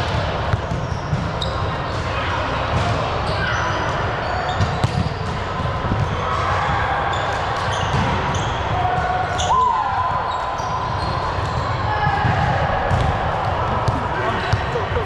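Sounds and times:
players' voices: 0.0s - 15.0s
sneakers squeaking on floor: 0.5s - 6.2s, 7.1s - 13.1s.

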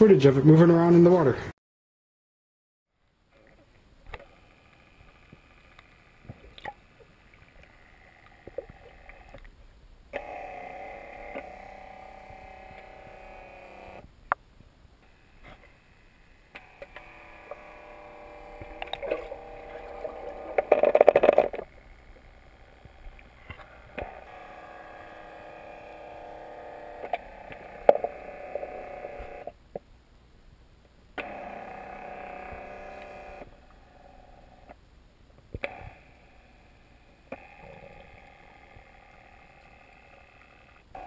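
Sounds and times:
small propeller motors whining: 10.2s - 14.0s, 15.1s - 29.6s, 31.2s - 34.7s, 35.6s - 41.0s.

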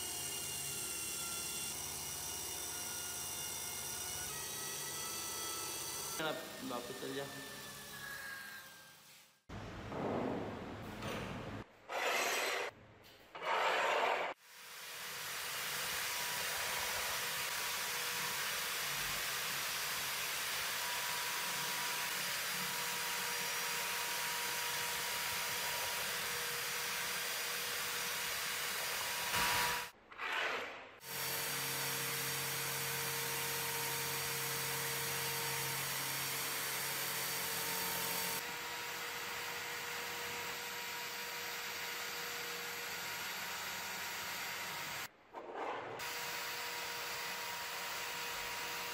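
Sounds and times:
wire brush drill whirring: 0.0s - 9.1s, 31.0s - 45.1s.

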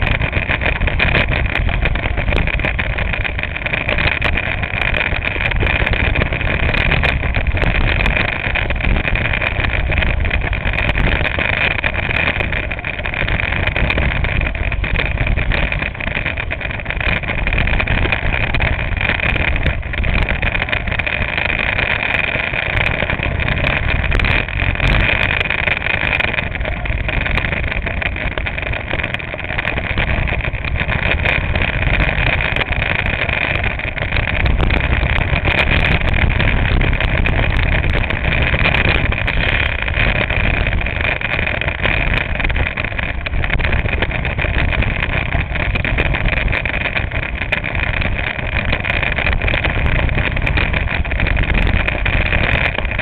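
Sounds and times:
chassis rumble: 0.0s - 53.0s
go-kart engine drone: 0.0s - 53.0s.

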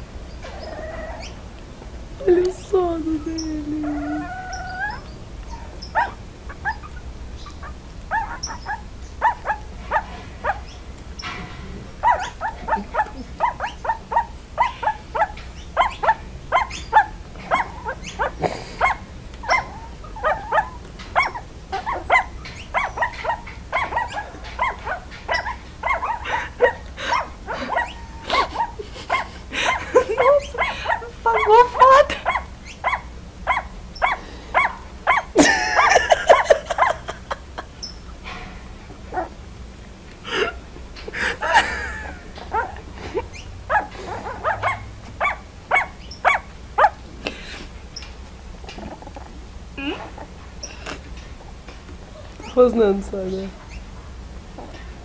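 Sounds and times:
puppies whining and yipping: 0.4s - 1.4s, 3.3s - 10.8s, 12.0s - 37.1s, 41.5s - 47.0s.

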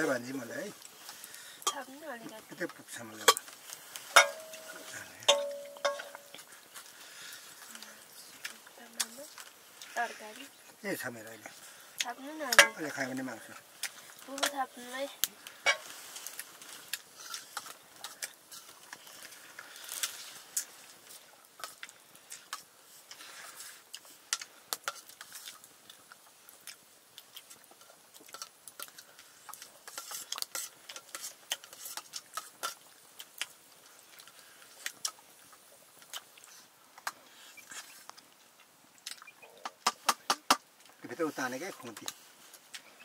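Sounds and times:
spoon clinking on metal plate: 4.2s - 6.4s
chewing: 15.2s - 39.8s.

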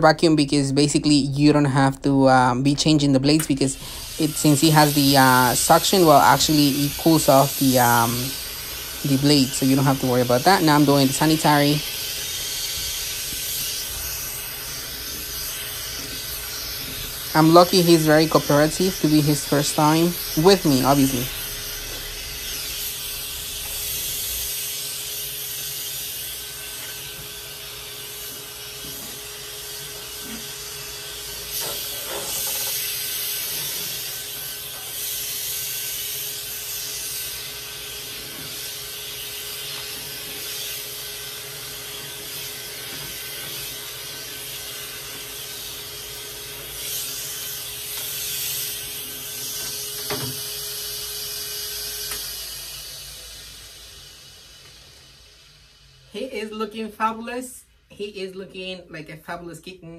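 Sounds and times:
vacuum suction hiss: 0.0s - 58.5s
electric clipper motor hum: 3.8s - 25.1s.

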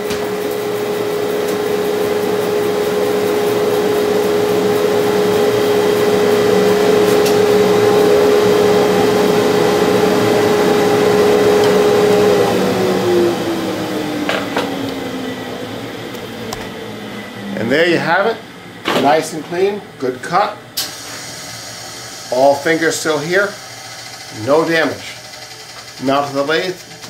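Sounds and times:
bandsaw cutting wood: 22.3s - 27.0s.

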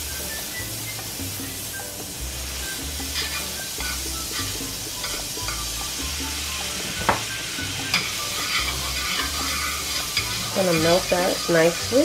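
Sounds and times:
background music with bass: 0.0s - 10.5s
butter sizzling in a frying pan: 0.0s - 12.0s
metal spoon scraping a pan: 2.6s - 5.7s, 7.8s - 12.0s.

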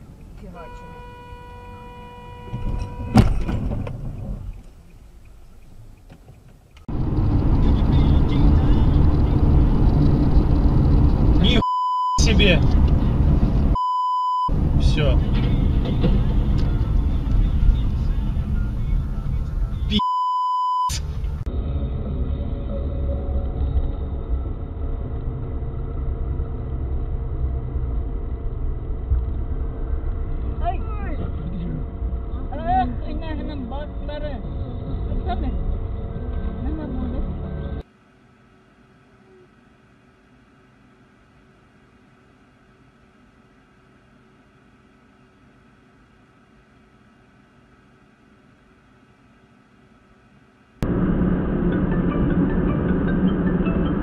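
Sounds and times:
road noise: 0.0s - 39.3s, 50.6s - 54.0s
car horn blaring: 0.5s - 3.6s
vehicle collision crash: 2.6s - 4.4s.

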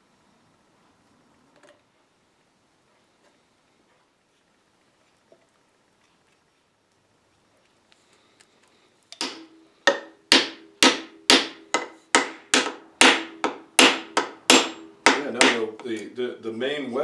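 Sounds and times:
hammer striking wooden wedge: 9.2s - 16.0s.

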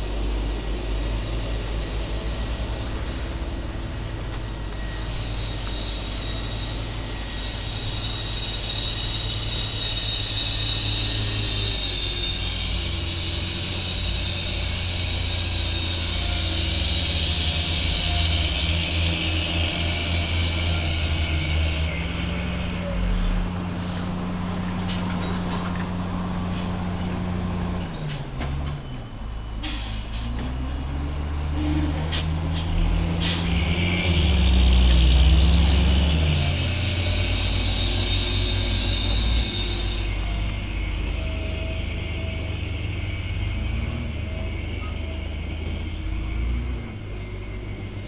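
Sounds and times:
diesel truck engine labouring: 0.0s - 48.0s
air hiss: 32.1s - 33.9s.

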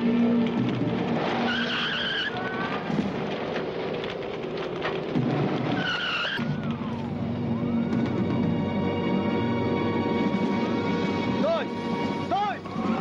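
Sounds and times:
tyres squealing: 0.6s - 8.0s.

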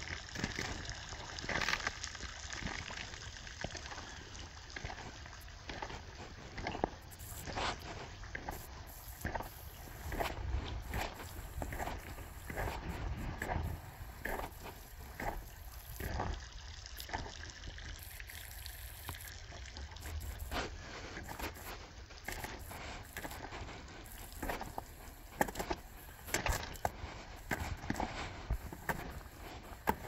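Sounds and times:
creek water trickling: 0.0s - 30.0s
footsteps: 4.8s - 16.4s, 19.9s - 30.0s.

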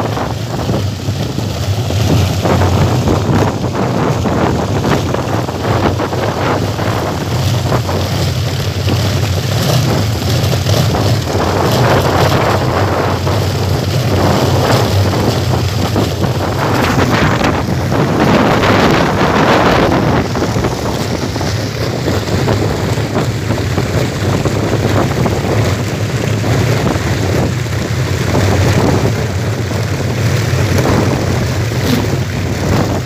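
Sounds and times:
wind buffeting microphone: 0.0s - 33.0s
wind propellers whirring drone: 0.0s - 33.0s.

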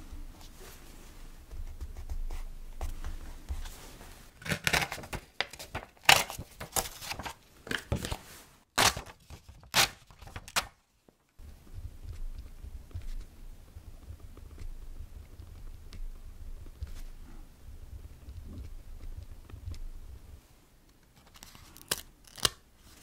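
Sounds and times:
paper rustling and tearing: 3.6s - 10.8s.

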